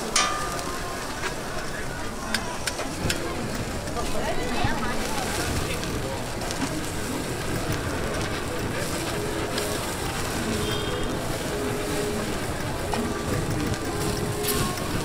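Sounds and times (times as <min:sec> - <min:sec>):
fire hissing and sizzling: 0:03.4 - 0:15.0.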